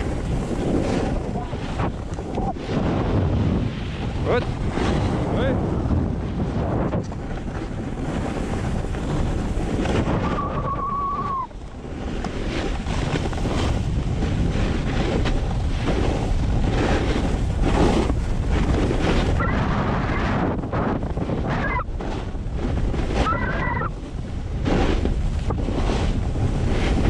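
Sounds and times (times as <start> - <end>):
snowboard sliding on snow: 0.0 - 27.0
wind buffeting microphone: 0.0 - 27.0.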